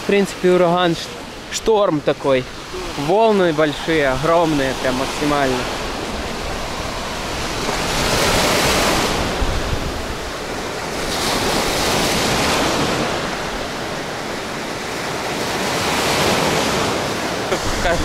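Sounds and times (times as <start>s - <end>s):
big waves breaking on shore: 0.0s - 18.0s
wind buffeting microphone: 2.2s - 14.8s.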